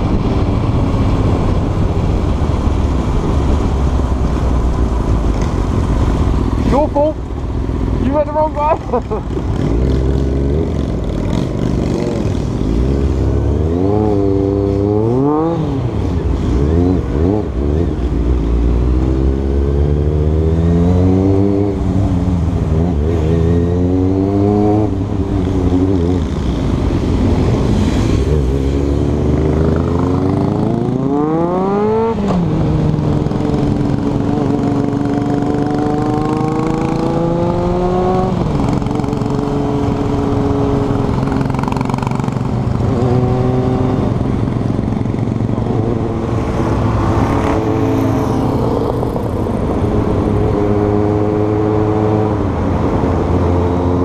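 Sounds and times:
wind rumble on microphone: 0.0 - 8.0
motorcycle engine revving: 0.0 - 54.0.

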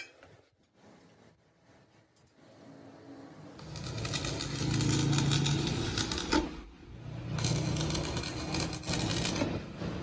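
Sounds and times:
welding arc crackling and sizzling: 3.6 - 10.0.

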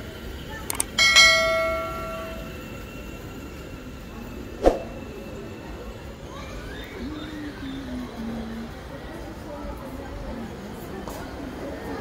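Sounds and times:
bell-like ding: 1.0 - 2.6.

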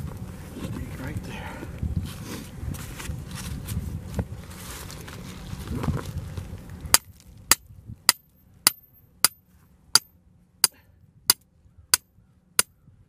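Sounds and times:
hammer striking stake: 6.9 - 12.8.

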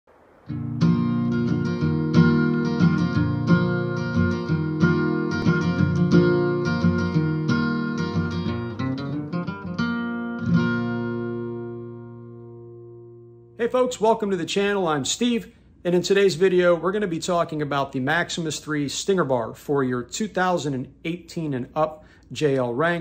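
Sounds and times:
acoustic guitar picking: 0.4 - 13.8.

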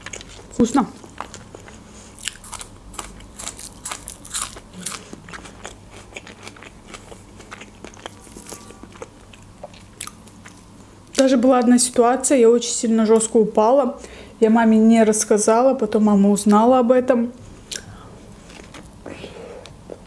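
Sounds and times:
crunchy chewing of green onion: 0.0 - 10.9.

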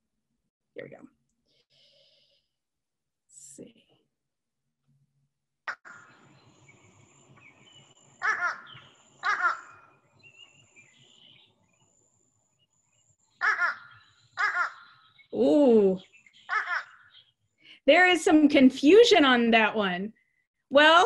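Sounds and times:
crow calling: 5.7 - 6.3, 8.1 - 10.5, 13.3 - 15.4, 16.0 - 17.4
outdoor background hiss: 6.1 - 16.5, 17.1 - 20.1.

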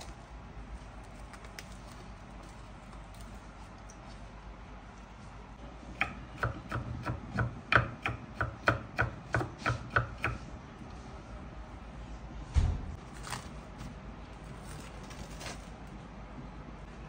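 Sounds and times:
knife chopping on wooden board: 6.0 - 10.4.

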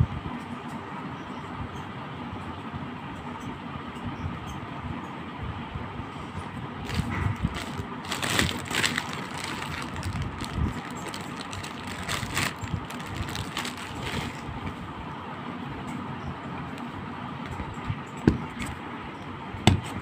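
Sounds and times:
steady background noise: 0.0 - 20.0
plastic bag crinkling: 6.8 - 14.5.

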